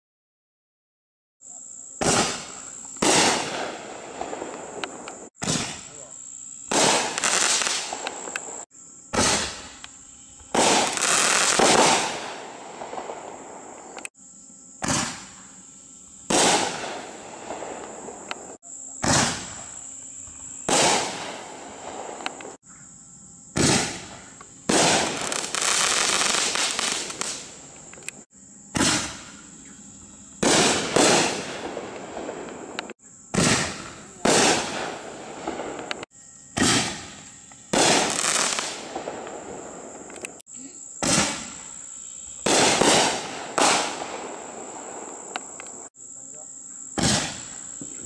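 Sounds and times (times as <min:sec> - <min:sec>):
crackling firework sizzle: 0:01.5 - 0:22.7, 0:23.4 - 0:46.0, 0:46.8 - 0:48.0
firework burst: 0:02.0 - 0:06.1, 0:06.7 - 0:09.8, 0:10.4 - 0:14.1, 0:14.8 - 0:15.5, 0:16.2 - 0:22.6, 0:23.5 - 0:28.1, 0:28.7 - 0:29.5, 0:30.4 - 0:40.3, 0:41.0 - 0:41.8, 0:42.4 - 0:45.9, 0:47.0 - 0:47.7
firework launch bang: 0:02.0 - 0:06.1, 0:06.7 - 0:08.4, 0:09.1 - 0:09.8, 0:10.5 - 0:13.3, 0:14.8 - 0:15.4, 0:16.3 - 0:18.2, 0:19.0 - 0:19.8, 0:20.6 - 0:22.6, 0:23.6 - 0:27.5, 0:28.7 - 0:29.4, 0:30.4 - 0:39.4, 0:41.0 - 0:41.7, 0:42.4 - 0:45.1, 0:47.0 - 0:47.6.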